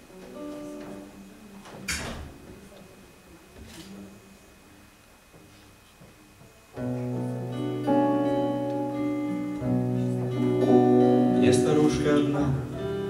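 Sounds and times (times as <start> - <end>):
guitar chords ringing: 0.0 - 1.3, 6.8 - 13.0.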